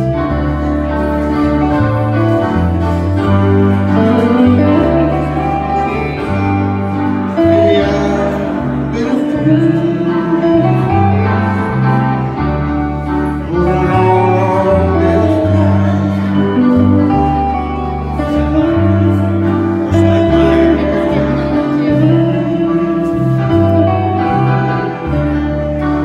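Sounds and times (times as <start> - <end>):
country band playing: 0.0 - 26.0
man singing: 7.3 - 11.0.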